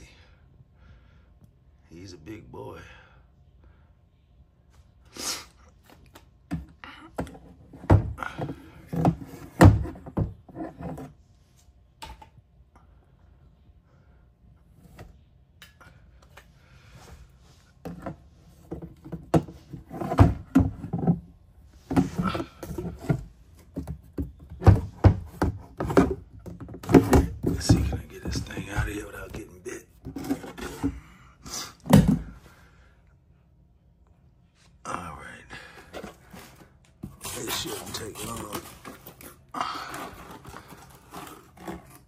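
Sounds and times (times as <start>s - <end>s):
hard plastic knocking and clattering: 6.5s - 11.1s, 17.8s - 29.4s.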